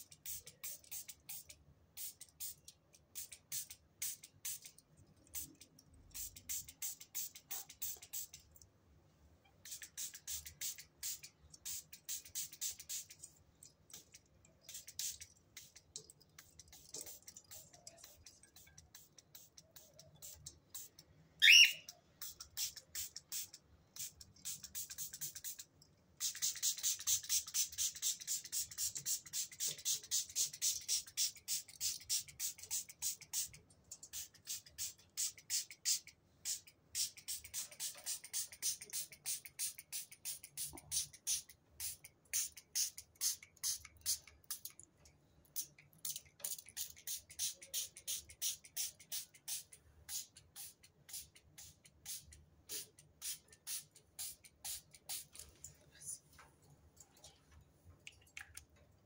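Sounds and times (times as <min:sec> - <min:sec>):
cockatiel call: 0:21.4 - 0:21.9.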